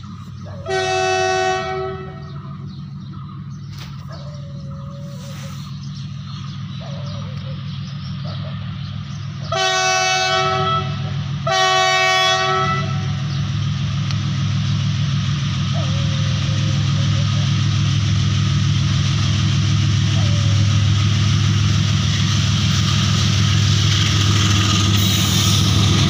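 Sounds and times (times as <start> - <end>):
train rumbling past: 0.0 - 26.0
locomotive horn blasts: 0.6 - 2.6, 9.5 - 13.4.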